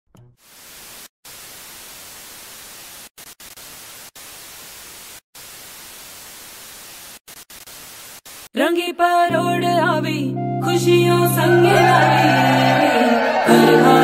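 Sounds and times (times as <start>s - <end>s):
static hiss: 0.4s - 8.6s.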